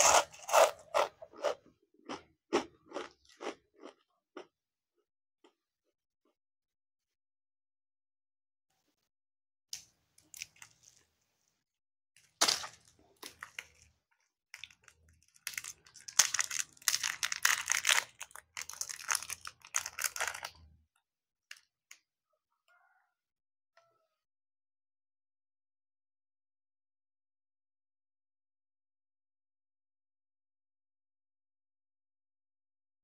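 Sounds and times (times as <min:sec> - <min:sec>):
plastic packet crinkling: 0:14.6 - 0:20.6.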